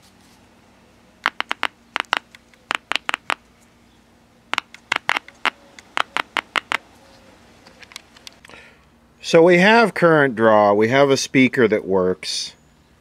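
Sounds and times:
speaker clicking: 0:01.2 - 0:03.5, 0:04.5 - 0:06.8.

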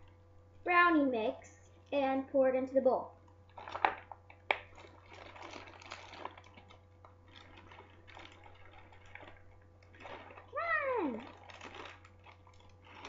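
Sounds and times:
plastic bag rustling and crinkling: 0:03.3 - 0:13.0
powder pouring into bowl: 0:03.4 - 0:13.0.

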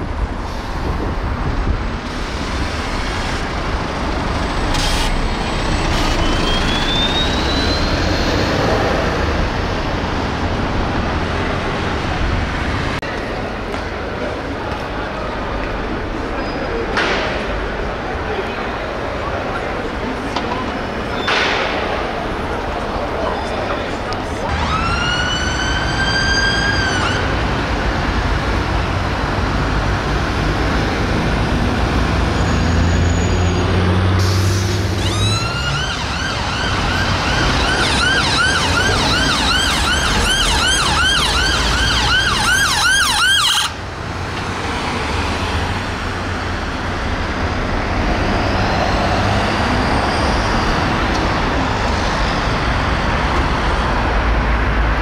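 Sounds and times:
road traffic noise: 0:00.0 - 0:55.0
ambulance siren wailing and yelping: 0:24.5 - 0:27.3, 0:35.0 - 0:43.8.

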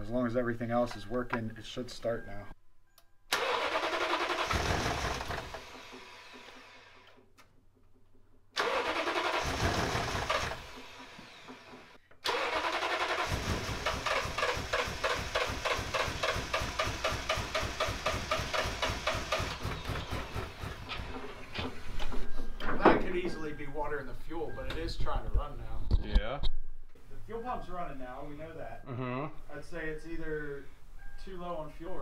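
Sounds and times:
engine starter cranking: 0:03.3 - 0:07.3, 0:08.5 - 0:22.3.

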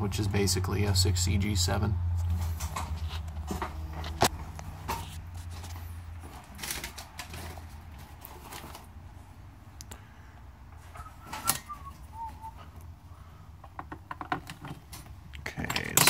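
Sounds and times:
clicks and knocks of handling: 0:13.6 - 0:16.0.

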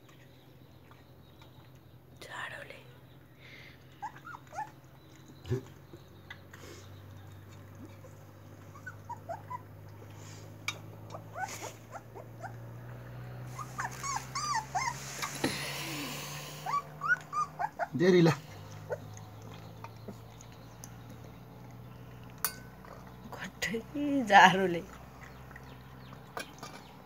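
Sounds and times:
puppy whimpering: 0:03.9 - 0:05.6, 0:07.8 - 0:09.9, 0:11.0 - 0:12.8, 0:13.4 - 0:15.4, 0:16.0 - 0:21.4.

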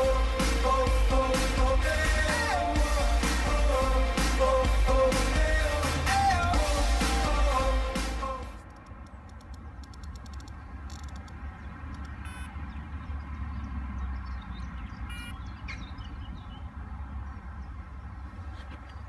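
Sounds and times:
faint bird chirps: 0:11.6 - 0:16.7
bite alarm electronic beeps: 0:12.0 - 0:12.6, 0:15.1 - 0:15.8.

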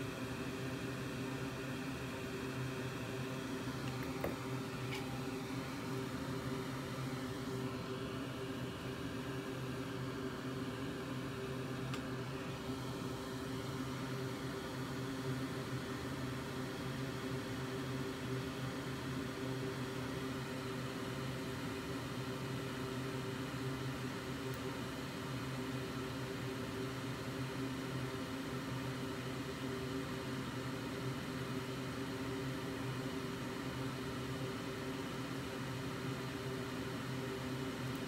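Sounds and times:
electric fan whirring: 0:00.0 - 0:27.4.

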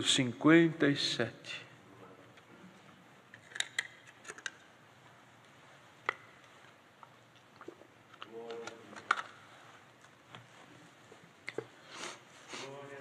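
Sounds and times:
small objects clicking and tapping: 0:03.4 - 0:04.6.

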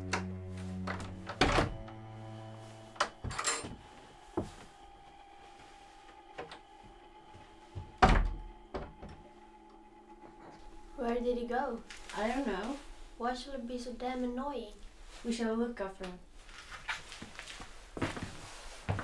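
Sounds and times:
wooden door opening and shutting: 0:00.0 - 0:02.1, 0:02.9 - 0:03.9, 0:07.8 - 0:09.2
low droning film score music: 0:00.0 - 0:15.0.

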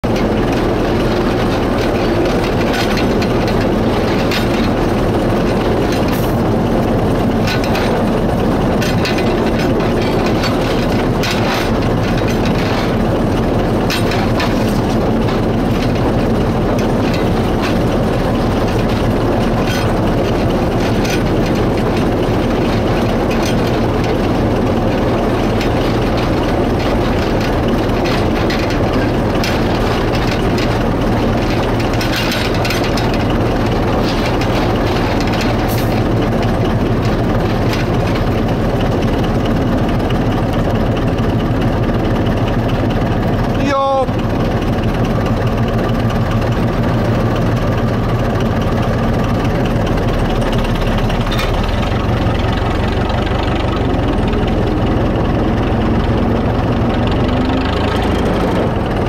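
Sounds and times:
locomotive engine running: 0:00.0 - 0:59.0
sharp clicks and knocks: 0:00.0 - 0:59.0.

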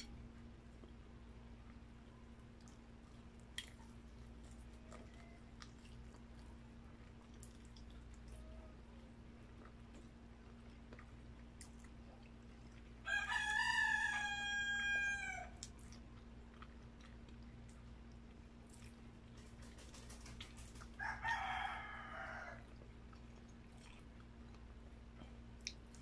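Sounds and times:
rooster crowing: 0:13.0 - 0:15.6, 0:21.0 - 0:22.7.

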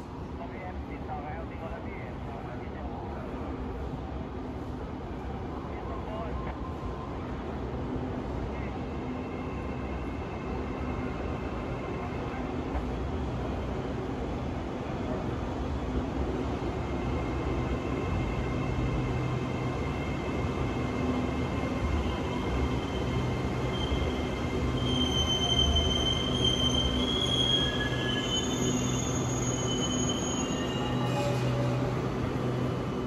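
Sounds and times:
brakes and wheels squealing: 0:22.8 - 0:32.6.

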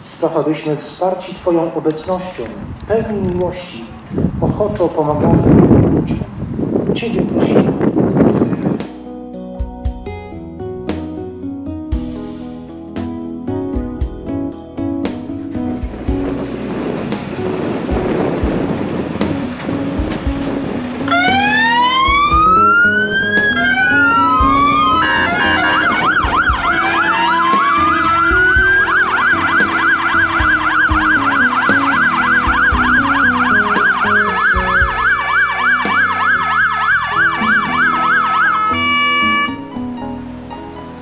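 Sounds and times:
fire engine sirens wailing: 0:18.4 - 0:39.7.

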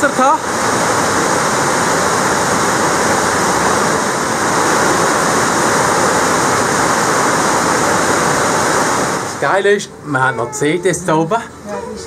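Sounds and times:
water rushing over rocks: 0:00.0 - 0:09.6.

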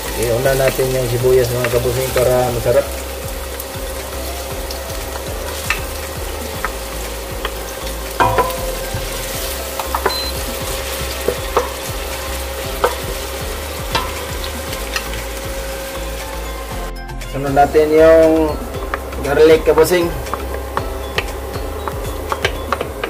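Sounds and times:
onion sizzling in hot oil: 0:00.0 - 0:23.0
wooden spatula knocking on pot: 0:08.2 - 0:15.1, 0:18.7 - 0:23.0.

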